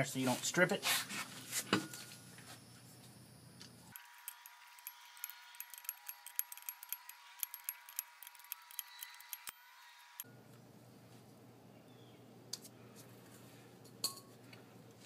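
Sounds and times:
metal tools clinking: 0:03.9 - 0:10.2
socket ratchet clicking: 0:03.9 - 0:10.2.

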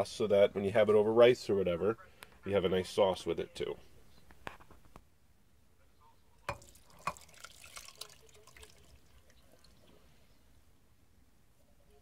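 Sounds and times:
can knocking: 0:06.5 - 0:07.2
juice and fruit splashing: 0:06.5 - 0:10.0.

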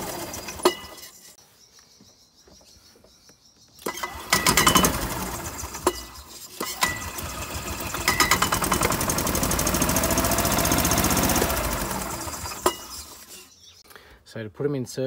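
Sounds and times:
golf cart engine running: 0:00.0 - 0:01.0, 0:03.9 - 0:13.4.

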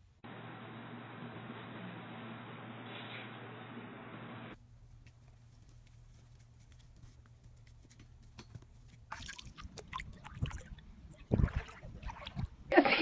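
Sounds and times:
water splashing and dripping: 0:09.1 - 0:13.0.

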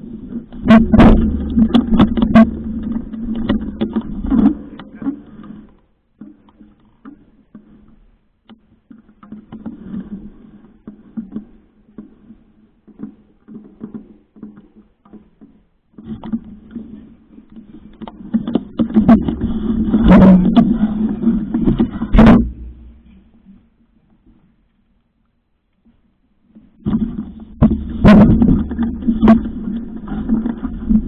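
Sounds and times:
loud dense clattering: 0:00.6 - 0:05.1, 0:18.8 - 0:23.3, 0:26.9 - 0:31.0.

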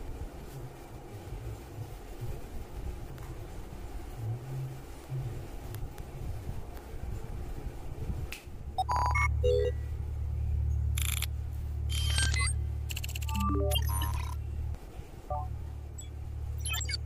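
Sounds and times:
low electronic drone: 0:09.0 - 0:17.0
digital chirping: 0:11.9 - 0:14.4, 0:15.3 - 0:17.0
short computer beeps: 0:11.9 - 0:14.4, 0:15.3 - 0:17.0.

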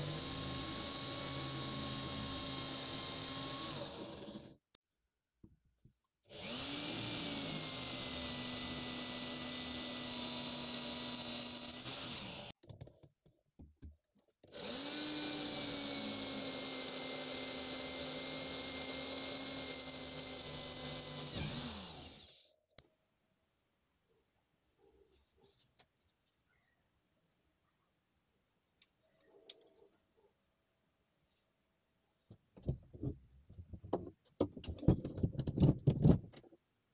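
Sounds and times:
electric drill boring metal: 0:00.0 - 0:04.6, 0:06.3 - 0:12.6, 0:14.5 - 0:22.5.

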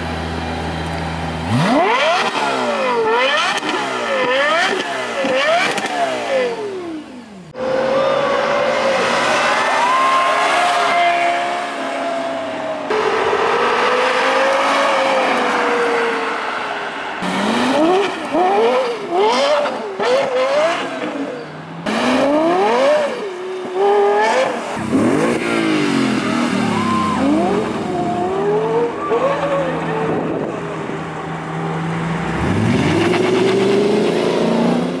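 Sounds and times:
sports car engine revving: 0:00.0 - 0:12.2, 0:17.2 - 0:35.0
car engine accelerating away: 0:23.8 - 0:35.0.

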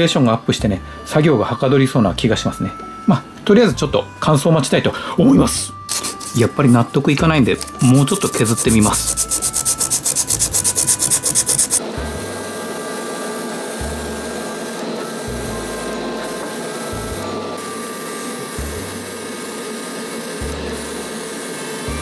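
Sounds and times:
soft background music: 0:00.0 - 0:22.0
sandpaper rubbing wood putty: 0:05.9 - 0:06.5, 0:07.6 - 0:11.8.

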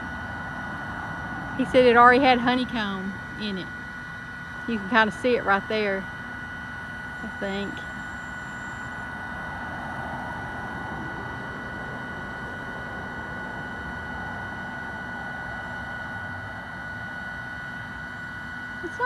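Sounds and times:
steady high-pitched whine: 0:00.0 - 0:19.0
vehicles passing on highway: 0:09.3 - 0:16.4.

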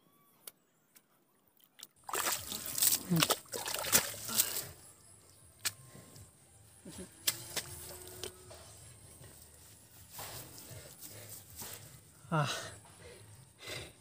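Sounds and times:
hands digging through mud: 0:02.0 - 0:04.7
hoe chopping into wet mud: 0:02.1 - 0:04.6.

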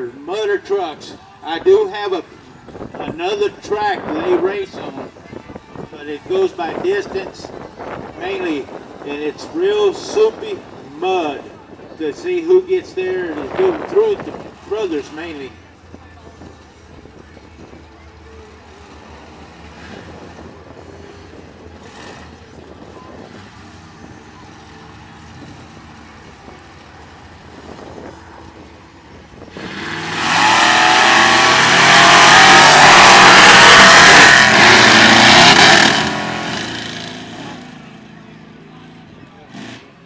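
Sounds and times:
truck engine at full throttle: 0:00.0 - 0:40.0
truck engine idling: 0:10.0 - 0:40.0.

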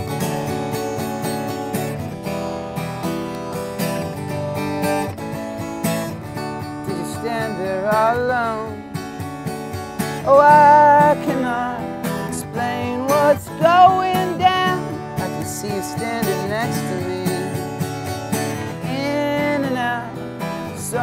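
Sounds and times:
acoustic guitar strumming: 0:00.0 - 0:21.0
man singing: 0:06.8 - 0:08.9, 0:10.2 - 0:17.8, 0:18.6 - 0:21.0.

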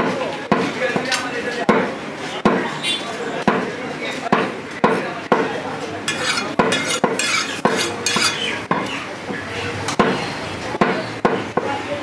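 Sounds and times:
knife chopping on wooden block: 0:06.1 - 0:08.9.

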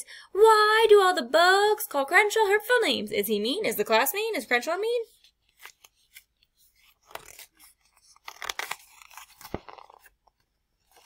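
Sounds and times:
paper rustling and crinkling: 0:05.2 - 0:11.0.

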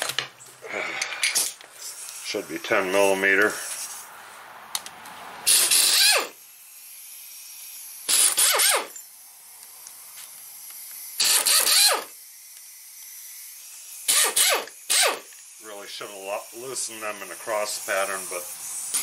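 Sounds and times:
power ratchet bursts: 0:05.4 - 0:09.2, 0:10.3 - 0:19.0.

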